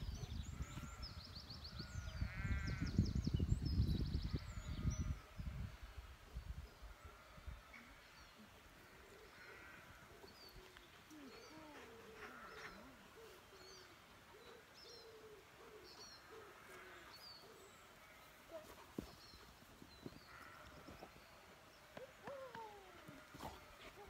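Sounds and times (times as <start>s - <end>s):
small birds chirping: 0.0s - 5.4s
low wavering cooing calls: 22.0s - 24.0s.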